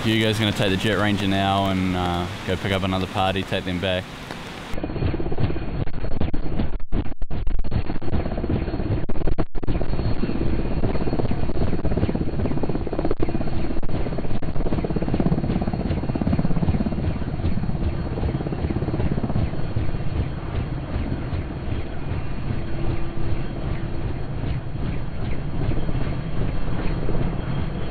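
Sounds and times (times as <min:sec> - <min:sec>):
helicopter hovering: 0:00.0 - 0:27.9.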